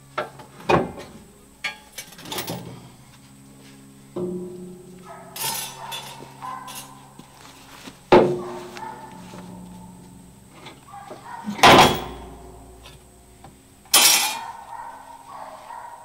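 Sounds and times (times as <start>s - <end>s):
loud metal clanks ringing: 4.1s - 7.2s, 8.1s - 10.9s, 11.5s - 14.6s.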